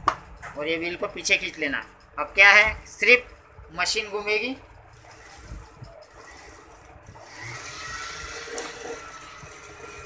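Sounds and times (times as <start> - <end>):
sewing machine bobbin winder whirring: 4.9 - 10.0.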